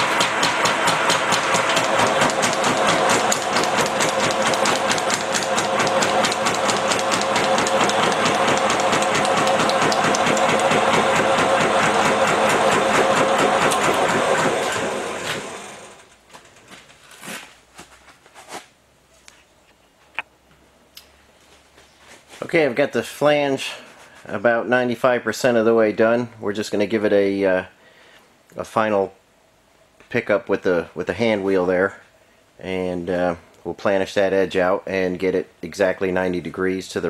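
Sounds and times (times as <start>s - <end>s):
machine ram hammering sheet metal: 0.0s - 15.8s.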